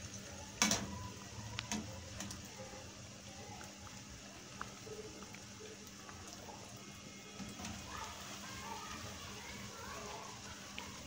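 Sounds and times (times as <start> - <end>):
food sizzling in hot oil: 0.0 - 11.0
oil popping: 3.2 - 11.0.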